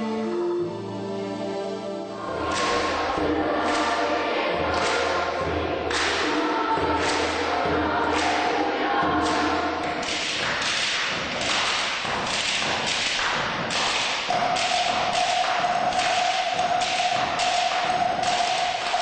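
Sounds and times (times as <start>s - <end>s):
choir singing: 1.8s - 10.4s, 14.3s - 19.0s
rhythmic percussive thuds: 2.2s - 19.0s.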